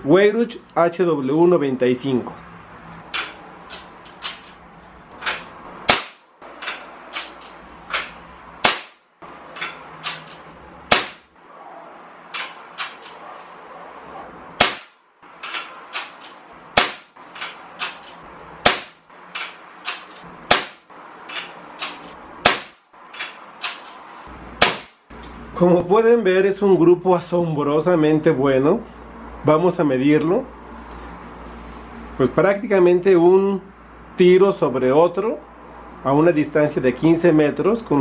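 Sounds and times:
air rifle shots cracking: 5.8 - 6.2, 8.6 - 9.1, 10.9 - 11.3, 14.6 - 15.0, 15.9 - 17.2, 18.6 - 19.0, 19.8 - 20.9, 21.8 - 22.8.

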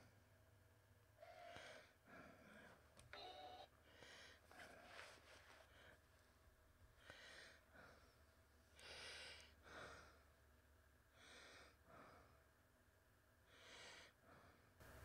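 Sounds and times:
low steady hum: 0.0 - 15.0
person breathing softly: 1.2 - 3.0, 3.8 - 10.4, 11.1 - 12.6, 13.4 - 15.0.

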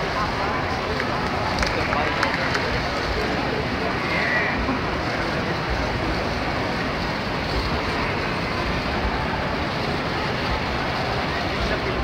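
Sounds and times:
many people talking: 0.0 - 12.0.

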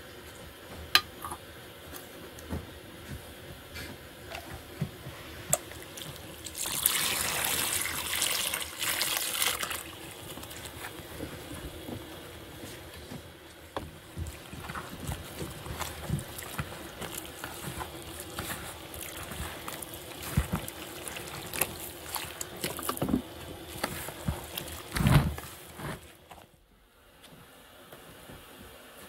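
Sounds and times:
hands mixing dough rustling: 1.8 - 26.5
water pouring into plastic basin: 5.6 - 10.8, 14.2 - 25.6.

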